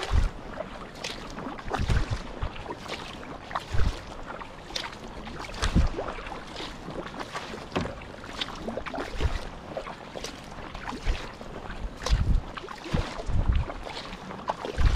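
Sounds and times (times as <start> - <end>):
paddle splashing in water: 0.0 - 14.9
water dripping off paddle: 1.0 - 2.2, 4.7 - 11.3.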